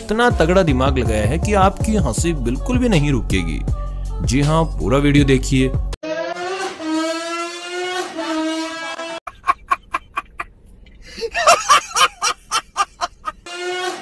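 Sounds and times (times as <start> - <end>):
man laughing: 9.3 - 13.4.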